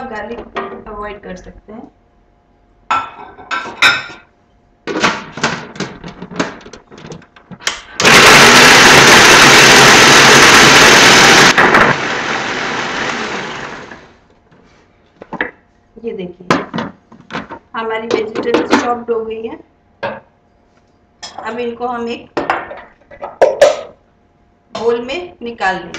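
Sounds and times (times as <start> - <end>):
electric food chopper motor: 8.0 - 14.2.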